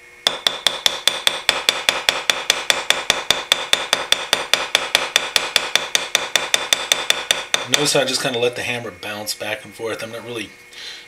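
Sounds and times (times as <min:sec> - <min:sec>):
hammer tapping on metal pin: 0:00.3 - 0:08.0.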